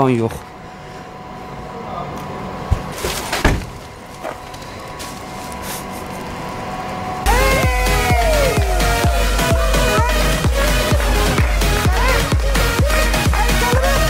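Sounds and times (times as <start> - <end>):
outdoor background noise: 0.0 - 9.2
electronic dance music: 7.3 - 14.0.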